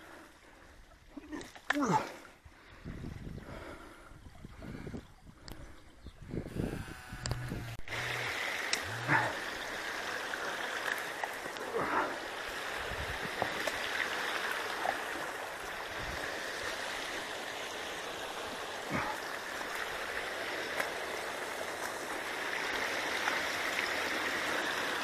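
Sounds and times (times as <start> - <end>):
water running through dam: 6.2 - 25.0.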